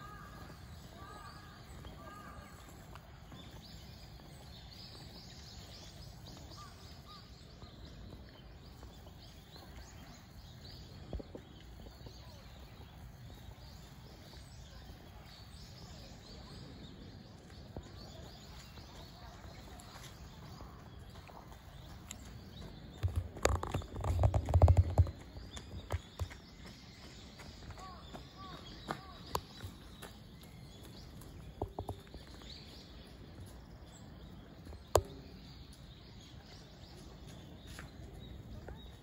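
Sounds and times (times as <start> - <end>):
small birds chirping: 0.0 - 39.0.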